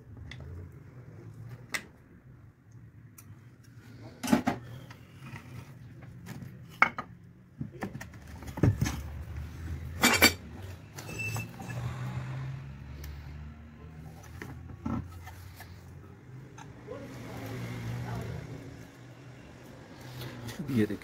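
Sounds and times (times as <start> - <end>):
metal tools clinking: 10.0 - 11.9.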